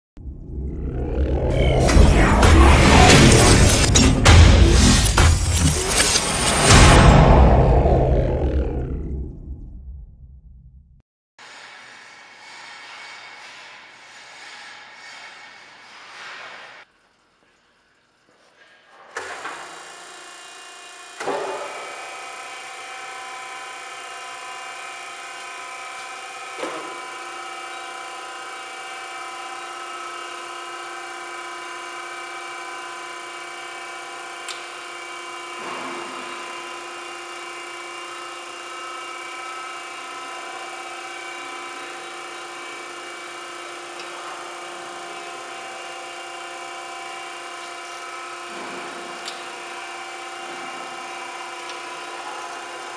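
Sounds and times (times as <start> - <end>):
grinder motors and pump humming: 0.2 - 9.1, 18.3 - 52.9
surface grinder starting up: 0.2 - 9.4, 35.0 - 42.9.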